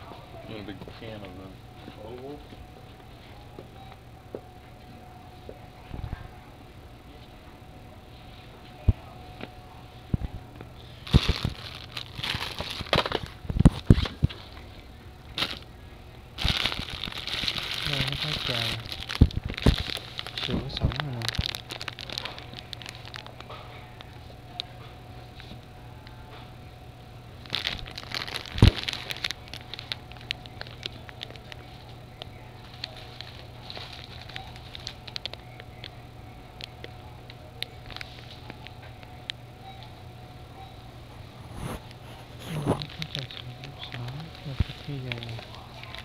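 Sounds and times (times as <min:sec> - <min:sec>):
plastic packaging crinkling: 0:10.9 - 0:14.6, 0:15.3 - 0:15.7, 0:16.4 - 0:24.7, 0:27.4 - 0:36.0, 0:37.6 - 0:38.7, 0:41.8 - 0:46.0.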